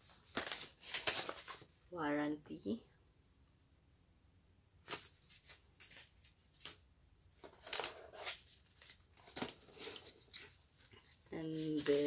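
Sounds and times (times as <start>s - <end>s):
paper and cardboard rustling: 0.0s - 1.8s, 4.9s - 6.8s, 7.4s - 12.0s.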